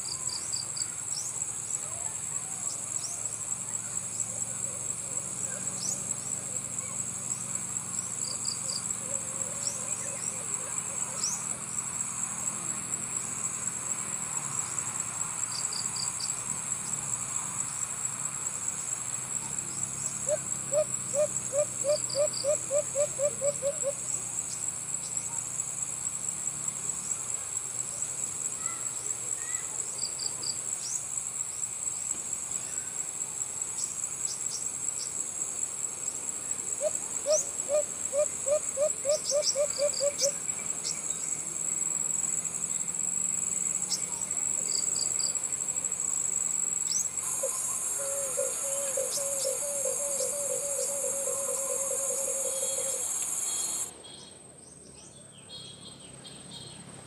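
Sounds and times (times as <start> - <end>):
high insect drone: 0.0 - 57.0
dove hooting: 20.2 - 24.0, 36.8 - 40.4, 47.2 - 53.9.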